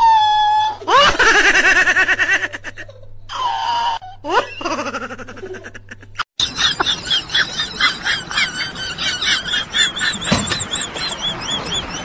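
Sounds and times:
woman laughing high-pitched: 4.2s - 11.4s.

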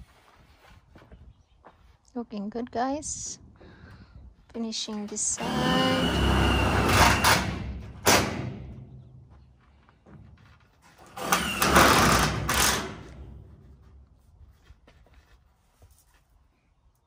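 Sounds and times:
loud work noise: 4.9s - 8.7s, 10.8s - 13.5s.

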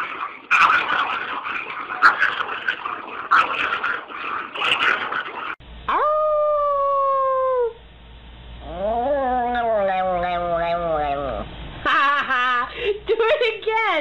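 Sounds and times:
small dog howling: 8.6s - 11.4s.

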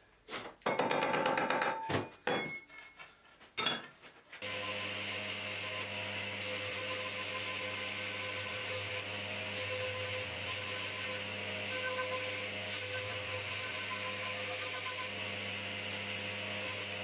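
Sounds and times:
belt grinder running: 4.4s - 17.0s.

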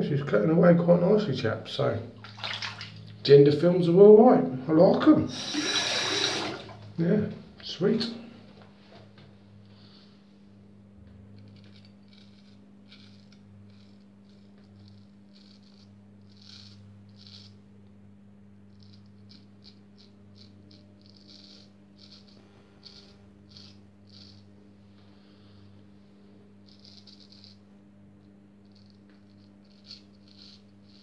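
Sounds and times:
steady low hum: 0.0s - 31.0s
razor scraping stubble: 11.1s - 17.7s, 18.6s - 25.7s, 26.5s - 31.0s.

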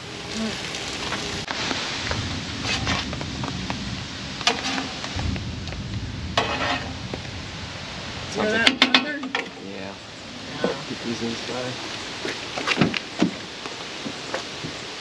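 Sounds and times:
vegetables sizzling on a griddle: 0.0s - 12.4s
metal spatula scraping griddle: 4.4s - 5.0s, 6.4s - 7.0s.

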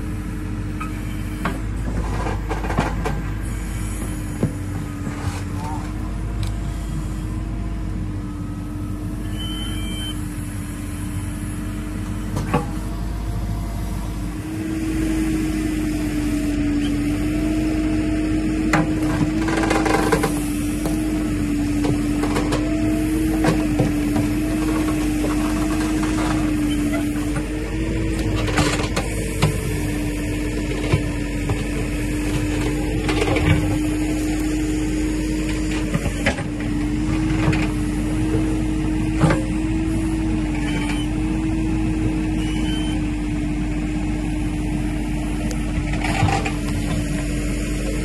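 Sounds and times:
diesel engine droning: 0.0s - 48.0s
knocks and scrapes: 1.5s - 3.4s, 4.3s - 6.0s, 23.3s - 27.5s
bucket scraping soil: 5.1s - 6.0s.

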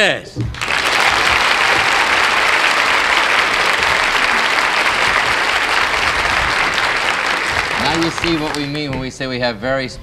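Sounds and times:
audience applauding: 0.5s - 9.4s.

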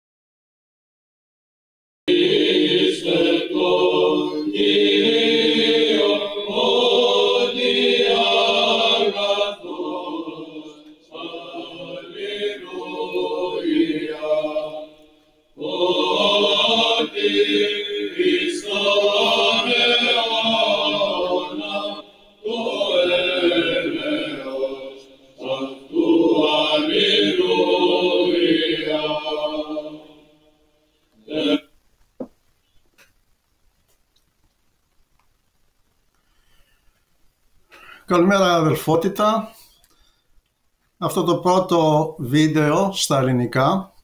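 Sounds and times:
voices chanting unaccompanied: 2.1s - 31.7s.

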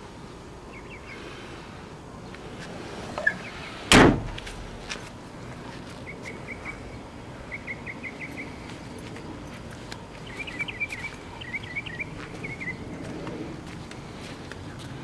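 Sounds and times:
car trunk lid slamming: 3.9s - 4.8s.

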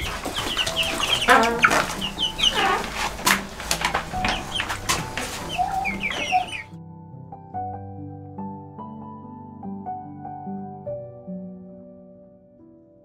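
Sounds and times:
young chickens clucking and peeping: 0.0s - 6.7s.

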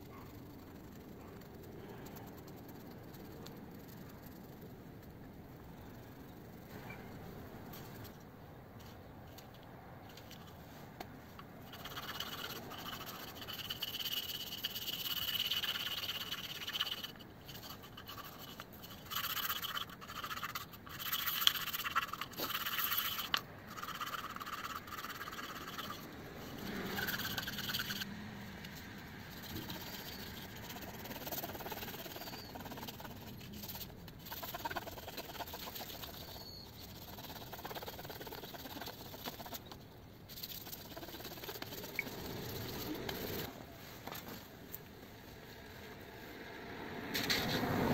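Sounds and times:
wood rubbed on abrasive block: 11.7s - 28.0s.

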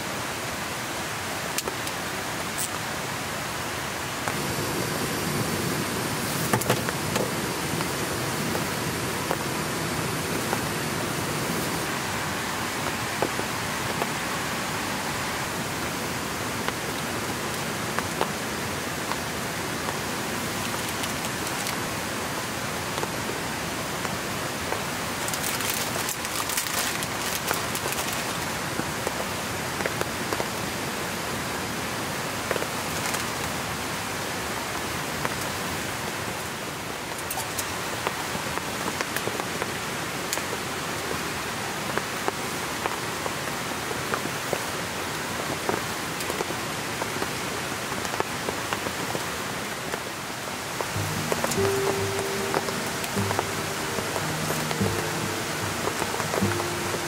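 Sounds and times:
steady rain hiss: 0.0s - 57.0s
raindrops tapping close by: 16.6s - 22.1s, 24.0s - 30.6s, 32.5s - 33.7s, 45.4s - 57.0s.

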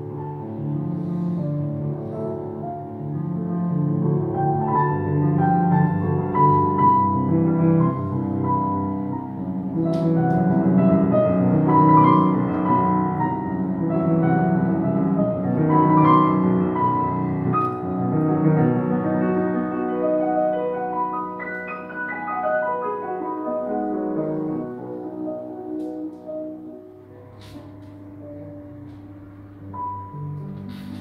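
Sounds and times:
grand piano playing: 0.0s - 31.0s.

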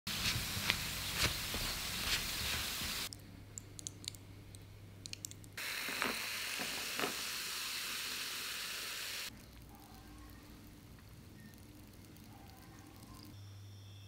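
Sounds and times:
cola fizzing over ice: 5.6s - 9.7s.

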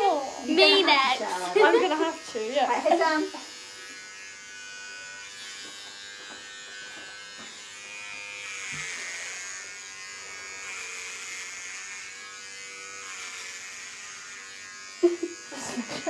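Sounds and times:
electric hair clippers buzzing: 0.0s - 16.0s.

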